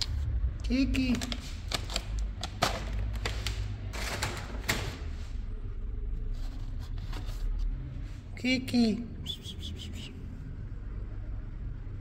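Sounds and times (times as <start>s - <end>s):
steady low rumble: 0.0s - 8.5s.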